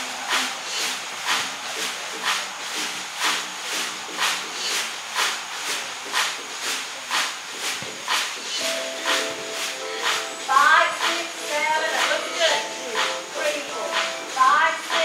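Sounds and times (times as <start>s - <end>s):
hissing percussion beat: 0.0s - 15.0s
low stepping melody line: 8.6s - 15.0s.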